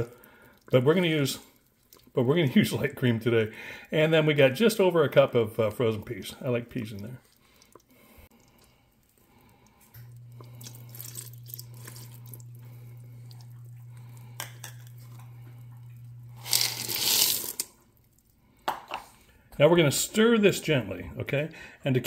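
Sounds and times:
cream trickling into pot: 0:00.0 - 0:19.3
low steady hum: 0:00.0 - 0:22.0
frozen peas rattling into liquid: 0:10.1 - 0:12.6, 0:16.3 - 0:18.8.

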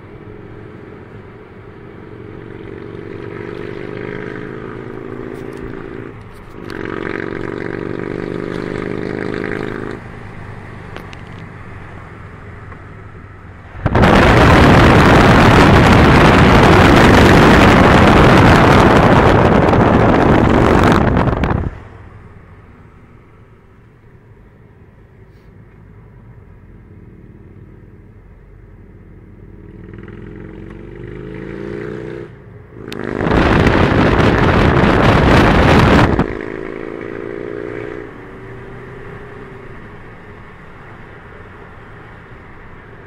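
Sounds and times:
car engine accelerating: 0:00.0 - 0:22.6, 0:29.1 - 0:43.0
loud rushing noise: 0:13.4 - 0:22.1, 0:32.9 - 0:36.8.

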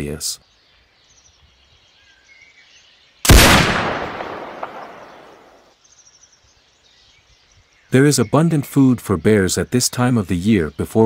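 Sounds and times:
gunshot with echo: 0:03.3 - 0:05.6.

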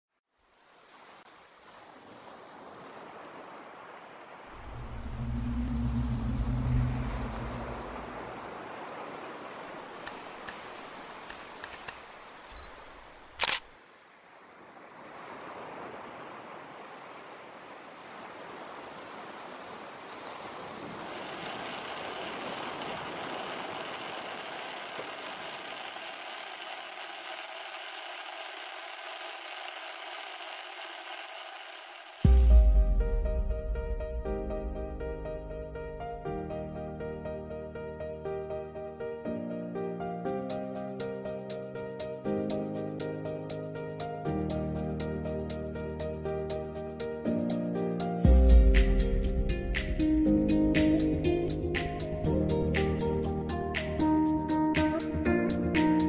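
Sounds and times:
layered synth drone: 0:04.6 - 0:08.5
sharp click: 0:10.1 - 0:13.7.

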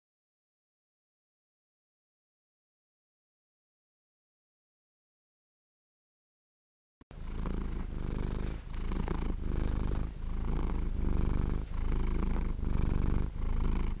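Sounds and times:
cat purring: 0:07.1 - 0:14.0.

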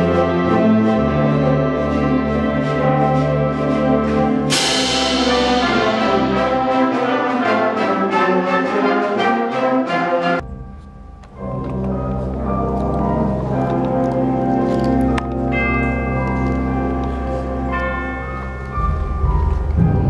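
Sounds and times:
concert band brass chords: 0:00.0 - 0:19.9
cymbal crash: 0:04.5 - 0:07.7.

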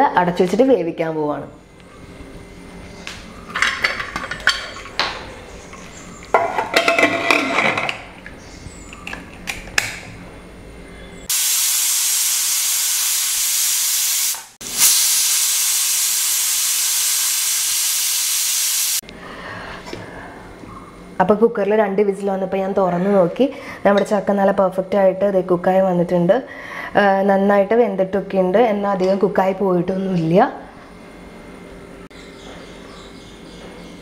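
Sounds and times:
pressure cooker whistling: 0:11.3 - 0:19.0.

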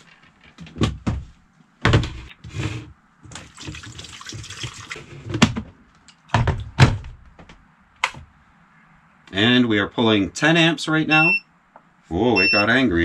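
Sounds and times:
water pouring into kettle: 0:03.4 - 0:05.0.

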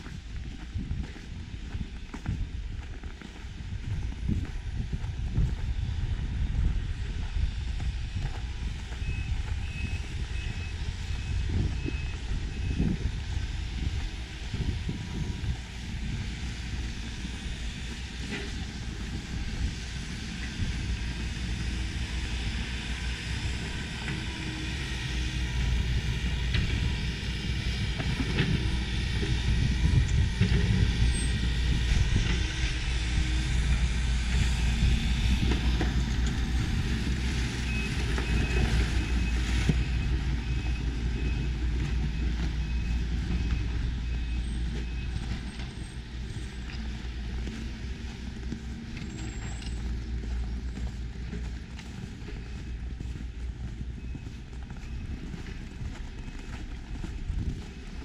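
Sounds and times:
traffic and machinery rumble: 0:00.0 - 0:58.0
faint high beep: 0:08.8 - 0:13.0
footsteps crunching in snow: 0:32.0 - 0:58.0.

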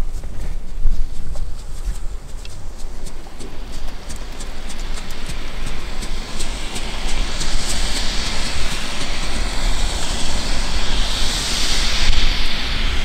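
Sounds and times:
small crackles: 0:00.0 - 0:08.9
firework fountain hissing: 0:03.2 - 0:13.0.

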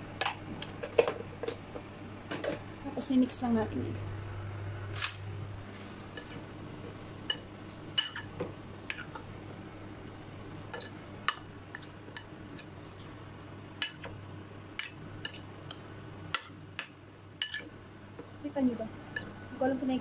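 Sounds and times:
low steady hum: 0:00.0 - 0:20.0
metal spoon clinking ceramic bowl: 0:08.0 - 0:08.3.

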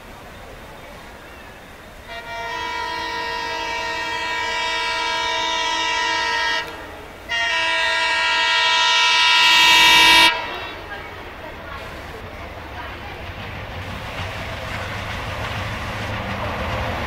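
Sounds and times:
locomotive air horn blasts: 0:02.0 - 0:10.9.

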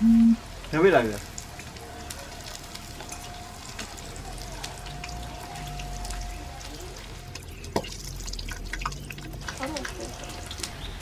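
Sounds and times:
faint high tone: 0:00.0 - 0:00.4
oil sizzling in a frying pan: 0:00.4 - 0:11.0.

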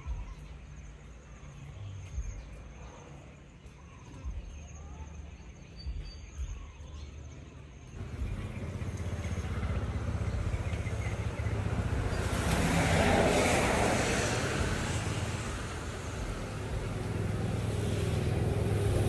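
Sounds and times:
road noise: 0:00.0 - 0:19.0
vehicle engine hum: 0:08.0 - 0:19.0.

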